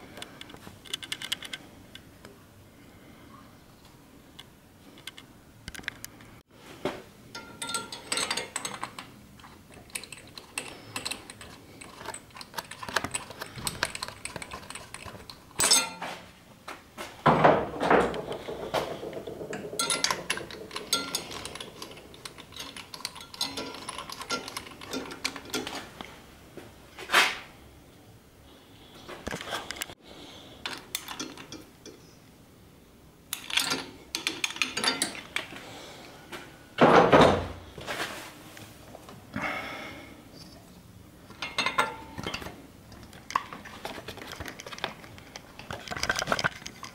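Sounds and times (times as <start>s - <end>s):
metal tools clinking and knocking: 7.3s - 16.2s, 17.8s - 26.0s, 30.6s - 32.1s, 33.3s - 35.6s, 41.3s - 46.9s
ringing metallic clank: 15.6s - 16.2s, 18.2s - 21.9s.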